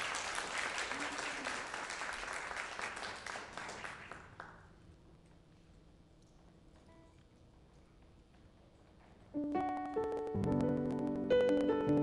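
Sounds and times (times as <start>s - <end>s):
congregation applauding: 0.0s - 4.7s.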